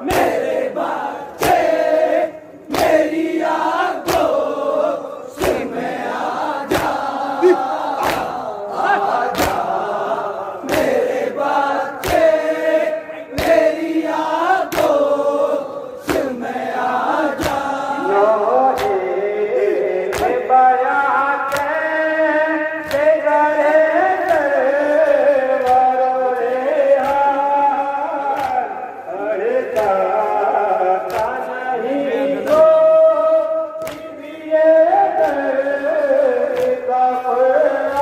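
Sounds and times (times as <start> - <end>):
hands slapping chests: 0.0 - 9.9, 10.6 - 16.6, 17.2 - 17.9, 18.7 - 19.1, 20.1 - 20.5, 21.5 - 21.8, 24.2 - 24.6, 25.5 - 27.4, 28.2 - 28.8, 31.1 - 31.4, 32.4 - 32.8, 33.8 - 34.2, 35.1 - 35.6, 36.4 - 36.9
crowd chanting: 0.0 - 38.0.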